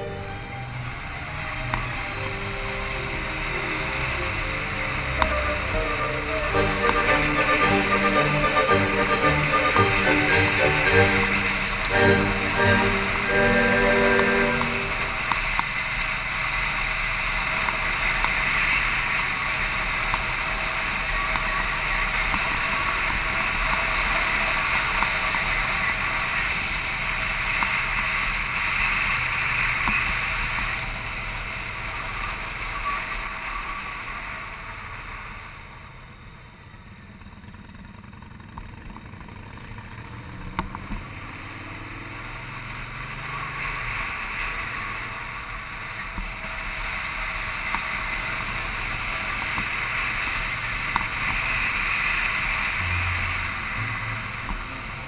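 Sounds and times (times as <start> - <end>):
wind and road noise: 0.0 - 55.0
motorcycle engine running: 36.4 - 43.1.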